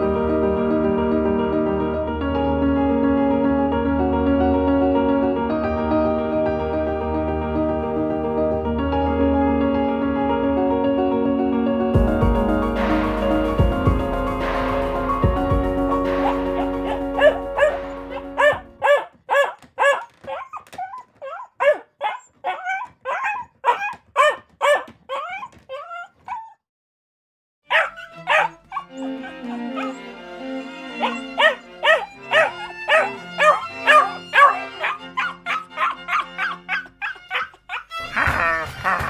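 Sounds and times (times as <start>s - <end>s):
background music: 0.0s - 19.4s, 27.7s - 39.0s
cartoon dog yips and barks: 16.2s - 17.8s, 18.4s - 26.6s, 27.7s - 30.0s, 31.0s - 38.8s.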